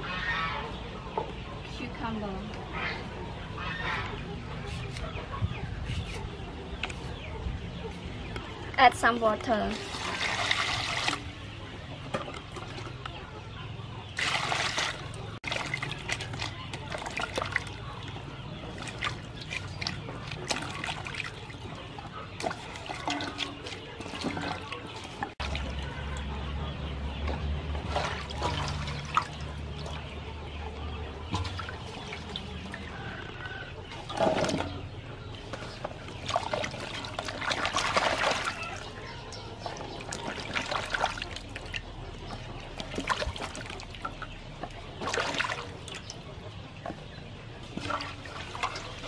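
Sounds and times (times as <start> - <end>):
hands splashing vegetables in water: 14.2 - 26.1, 36.2 - 44.1.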